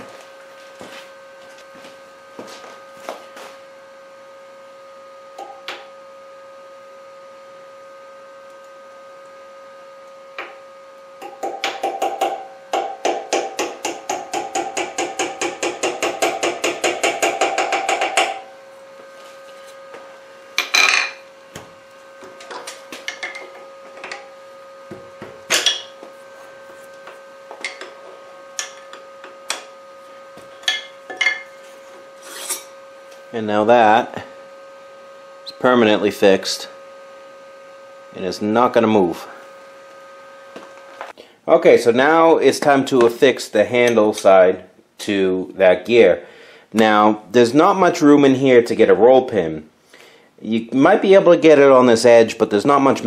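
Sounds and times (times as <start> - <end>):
hammer tapping on punch: 11.2 - 18.4.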